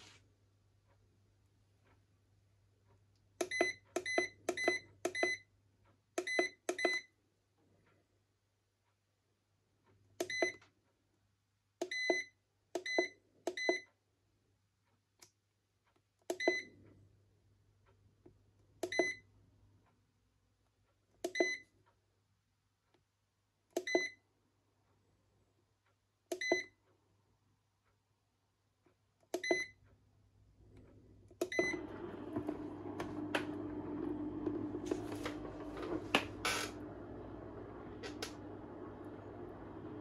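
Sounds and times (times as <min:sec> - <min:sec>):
control panel beeps: 0:03.4 - 0:05.4, 0:06.2 - 0:07.1, 0:10.2 - 0:10.6, 0:11.8 - 0:13.9, 0:16.3 - 0:16.7, 0:18.8 - 0:19.2, 0:21.3 - 0:21.6, 0:23.8 - 0:24.2, 0:26.3 - 0:26.7, 0:29.4 - 0:29.8, 0:31.4 - 0:31.9.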